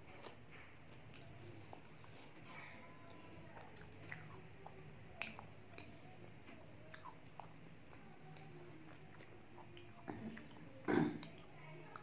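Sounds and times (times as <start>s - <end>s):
faint low hum: 0.0s - 12.0s
mouth chewing wet smacks: 3.6s - 5.9s, 6.6s - 12.0s.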